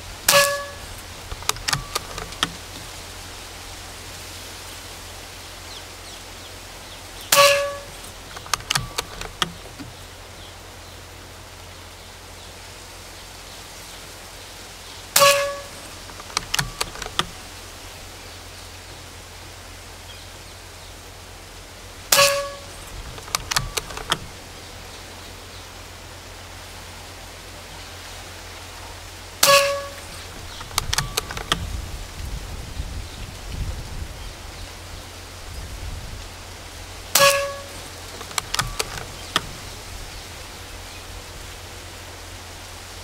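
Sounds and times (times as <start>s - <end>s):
air rifle shots: 0.3s - 3.0s, 7.3s - 10.1s, 15.2s - 17.4s, 22.1s - 24.4s, 29.4s - 31.7s, 37.2s - 39.8s
rifle action clicking: 0.3s - 3.0s, 7.4s - 10.1s, 15.2s - 17.4s, 22.1s - 24.4s, 29.4s - 31.7s, 37.2s - 39.8s.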